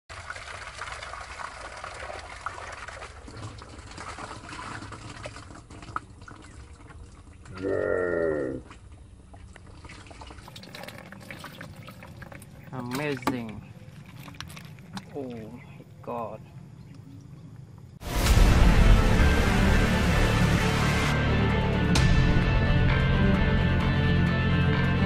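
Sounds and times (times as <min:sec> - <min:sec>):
water pouring and trickling: 0:00.1 - 0:07.7, 0:08.6 - 0:15.6.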